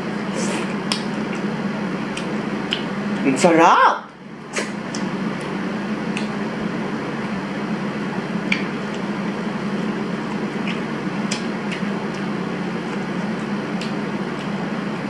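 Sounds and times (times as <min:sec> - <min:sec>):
background hum and hiss: 0:00.0 - 0:15.0
wet chewing clicks: 0:00.4 - 0:01.5, 0:02.1 - 0:03.2, 0:04.5 - 0:06.5, 0:08.4 - 0:15.0.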